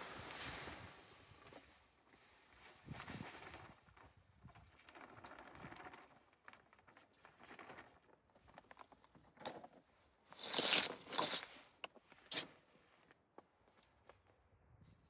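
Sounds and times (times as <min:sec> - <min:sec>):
plastic sack crinkling and scraping: 0:10.4 - 0:11.6.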